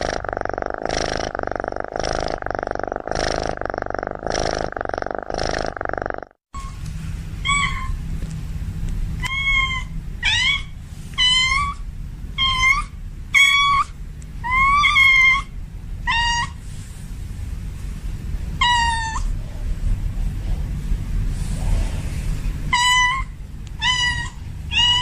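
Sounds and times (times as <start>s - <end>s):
cat meowing: 9.2s - 11.8s, 22.7s - 25.0s.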